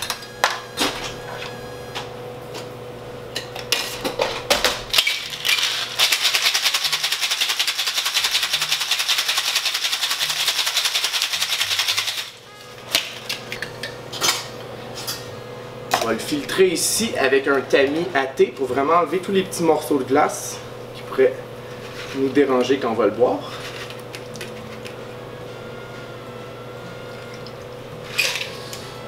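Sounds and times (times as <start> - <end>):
ice rattling in cocktail shaker: 5.0 - 12.4
soft background music: 8.6 - 29.0.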